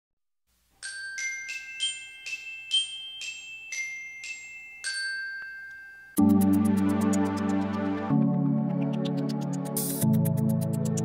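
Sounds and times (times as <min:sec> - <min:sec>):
bell-like jingle melody: 0:00.8 - 0:06.7.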